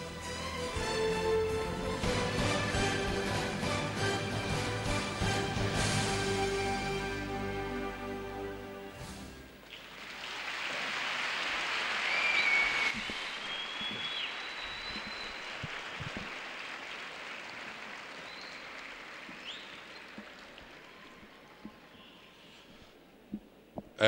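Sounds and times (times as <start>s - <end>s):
large audience applauding: 9.6s - 22.0s
short high whistles: 12.1s - 15.6s.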